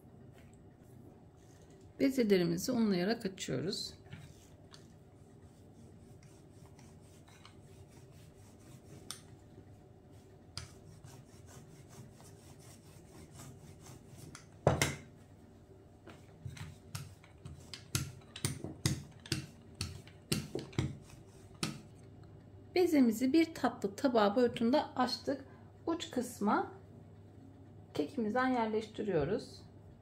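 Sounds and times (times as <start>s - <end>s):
dough roller rubbing over dough: 3.9s - 14.6s, 16.1s - 22.0s.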